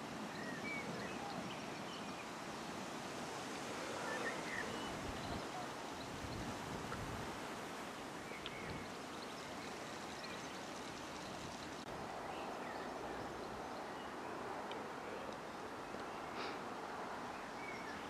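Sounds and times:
outdoor background noise: 0.0s - 18.0s.

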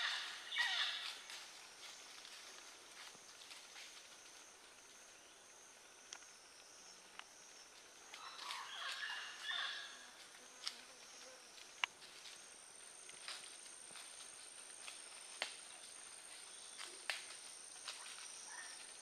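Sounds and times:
high insect drone: 0.0s - 19.0s
chirping calls: 8.1s - 10.0s.

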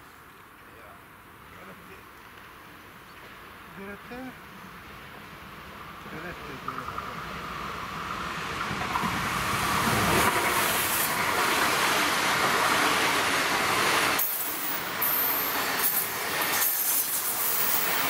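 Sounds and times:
electric train passing at speed: 4.4s - 18.0s.

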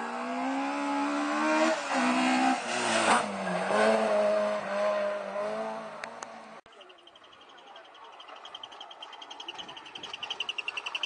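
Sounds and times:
rally car engine revving: 0.0s - 6.6s.

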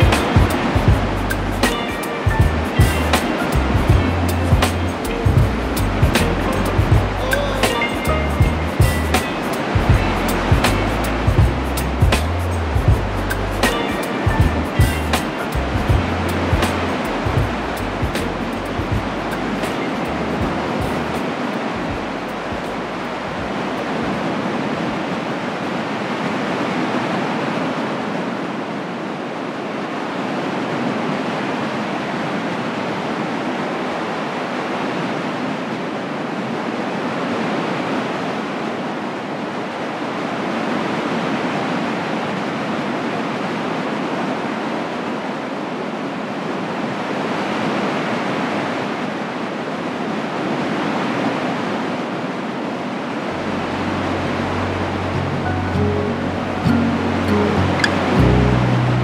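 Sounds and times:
ocean waves breaking on beach: 0.0s - 59.0s.

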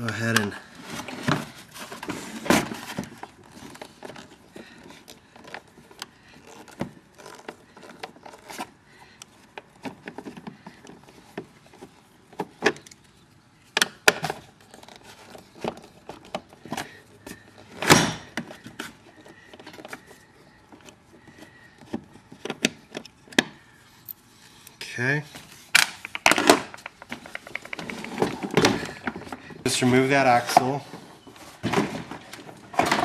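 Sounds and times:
parts clattering: 25.6s - 33.0s.

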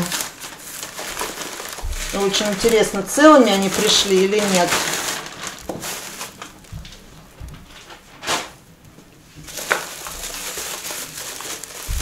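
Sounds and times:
bubble wrap rustling: 0.0s - 12.0s
soft low thumps: 1.6s - 4.2s, 5.0s - 7.8s.

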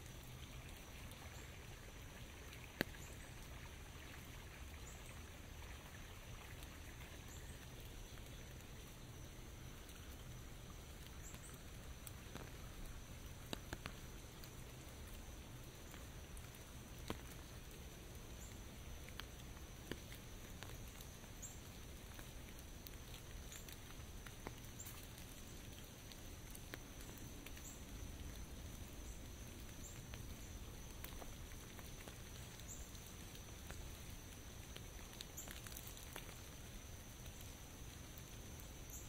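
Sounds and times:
light rain pattering: 0.0s - 39.0s
drops ticking on an umbrella: 9.8s - 39.0s.

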